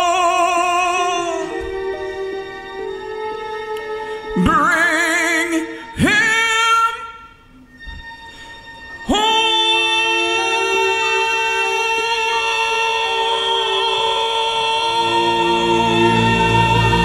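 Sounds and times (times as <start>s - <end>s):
soundtrack backing music: 10.0s - 17.0s.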